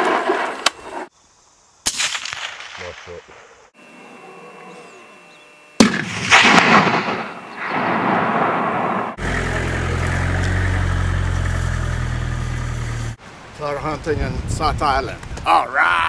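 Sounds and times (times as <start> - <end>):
rifle shot echoing: 1.9 - 3.3, 5.8 - 9.2
vehicle engine droning: 9.1 - 13.2.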